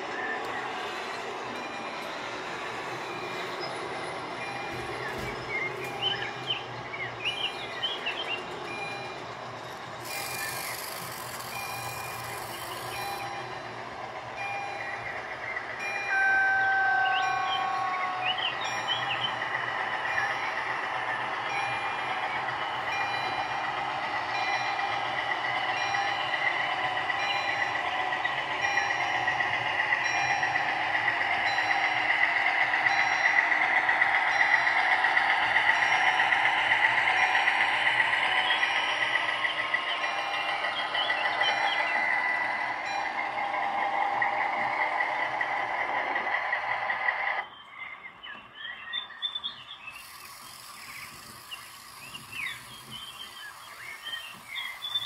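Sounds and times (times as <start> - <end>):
crossing warning signal beeps: 1.6 - 2.1, 3.0 - 20.6, 21.2 - 27.9
model train wheels rattling on track: 7.6 - 13.7, 49.9 - 55.0.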